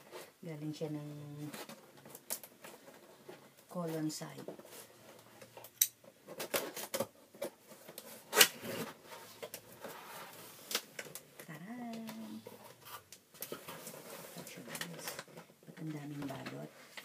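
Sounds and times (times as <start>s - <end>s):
cardboard scraping and rustling: 6.1s - 10.8s, 12.3s - 17.0s.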